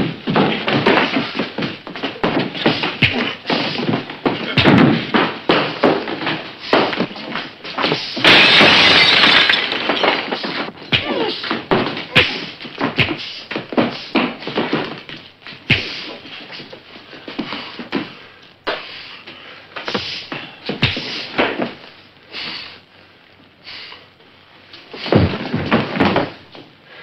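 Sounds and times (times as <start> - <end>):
punches and thuds: 0.0 - 7.2, 10.9 - 15.0, 15.6 - 16.1, 19.9 - 21.7, 25.0 - 26.4
bodies hitting furniture: 0.0 - 18.2, 24.9 - 26.6
loud smashing crash: 8.2 - 10.6.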